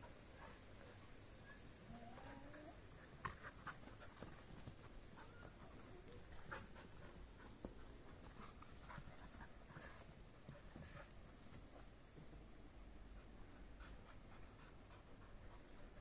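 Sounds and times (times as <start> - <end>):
dogs running on grass: 2.9 - 12.4.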